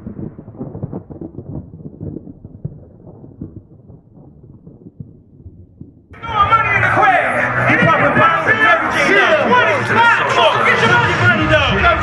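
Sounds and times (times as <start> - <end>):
deep thunder-like rumbling: 0.0 - 6.8.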